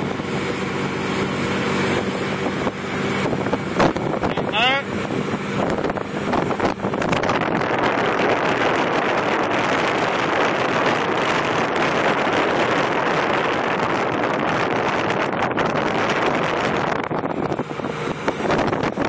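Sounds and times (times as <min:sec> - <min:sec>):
motorboat engine running: 0:00.0 - 0:19.0
water rushing past hull: 0:00.0 - 0:19.0
wind noise on microphone: 0:00.0 - 0:19.0.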